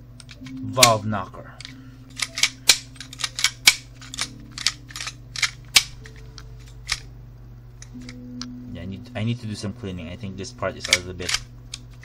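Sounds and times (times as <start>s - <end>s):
pistol slide clacking: 1.6s - 7.1s, 10.8s - 12.0s.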